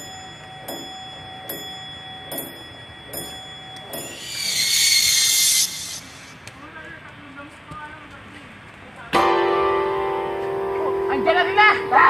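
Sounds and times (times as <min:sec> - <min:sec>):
held high tones: 0:00.0 - 0:06.4
hissing swell: 0:04.0 - 0:06.5.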